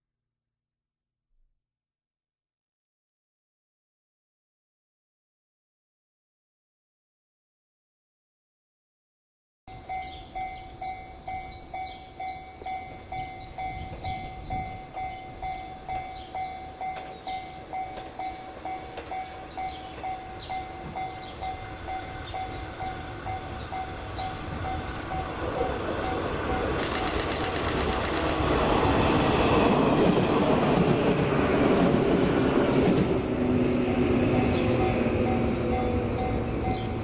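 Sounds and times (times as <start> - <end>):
level crossing warning bell: 9.7 - 27.2, 34.2 - 37.0
train rumble: 9.7 - 37.0.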